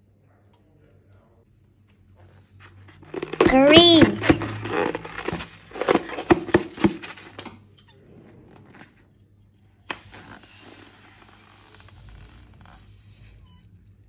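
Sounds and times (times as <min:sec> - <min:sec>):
rubber balloons clicking and squeaking: 0:03.0 - 0:07.4.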